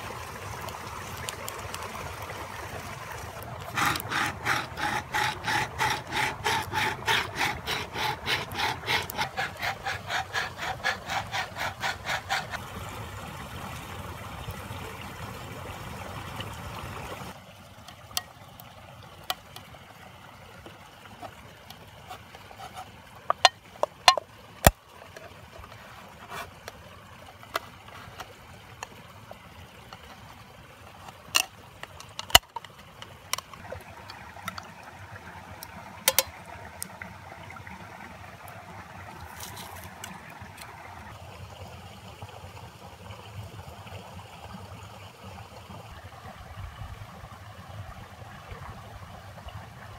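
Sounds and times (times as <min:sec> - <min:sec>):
tin can scraping on stone: 0:03.6 - 0:12.6, 0:22.1 - 0:26.8, 0:27.4 - 0:28.3, 0:31.0 - 0:33.6, 0:36.1 - 0:36.3, 0:39.3 - 0:40.1
knife prying lid off can: 0:03.7 - 0:12.6, 0:36.1 - 0:36.3.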